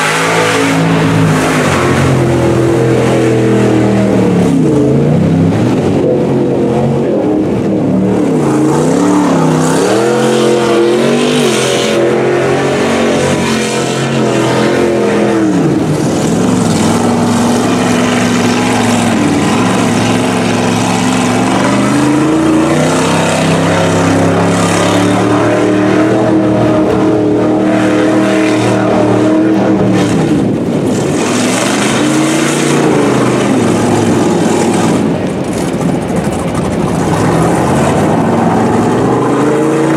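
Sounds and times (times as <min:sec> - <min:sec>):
truck engine revving: 0:00.0 - 0:39.9
water rushing and splashing: 0:00.0 - 0:39.9.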